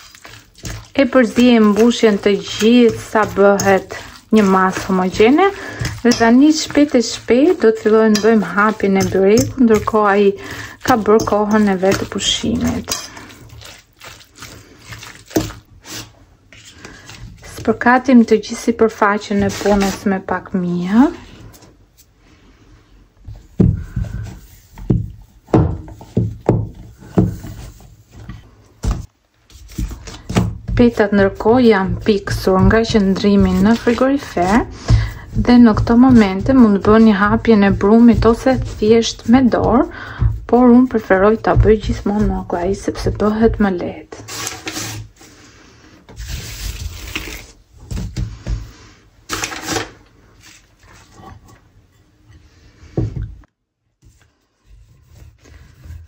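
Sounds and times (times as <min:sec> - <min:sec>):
rolling pin rolling dough: 0:00.0 - 0:21.2, 0:23.2 - 0:45.1, 0:54.0 - 0:56.0
dough thumping on wooden board: 0:24.8 - 0:27.5, 0:29.8 - 0:42.8.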